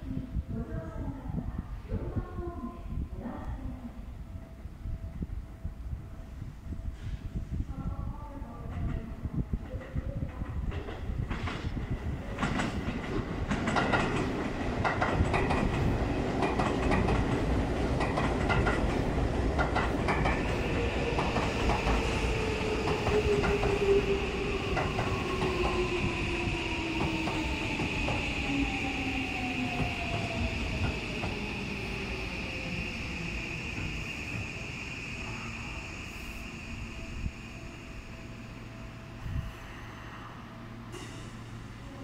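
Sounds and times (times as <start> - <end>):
steady high tone: 20.5 - 42.0.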